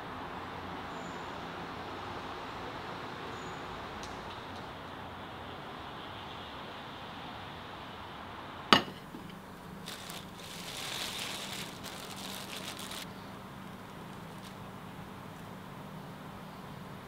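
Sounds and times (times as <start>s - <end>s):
plastic bag crinkling: 9.8s - 13.1s, 13.9s - 14.7s.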